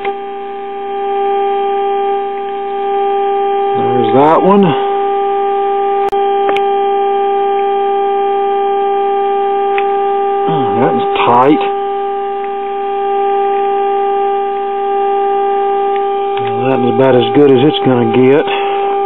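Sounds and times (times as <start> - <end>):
steady test tone from loudspeaker: 0.0 - 19.0.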